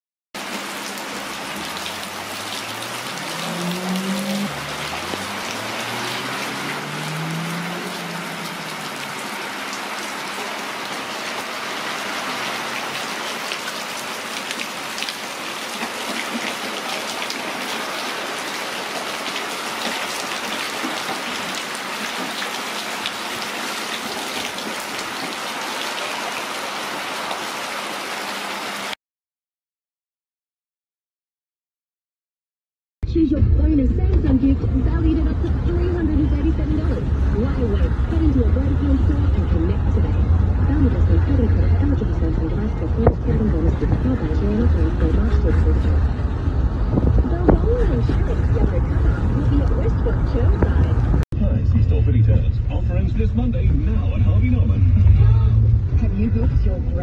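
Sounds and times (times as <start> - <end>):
rain splashing into puddles: 0.4 - 29.0
low rising tone: 2.7 - 9.2, 54.1 - 57.0.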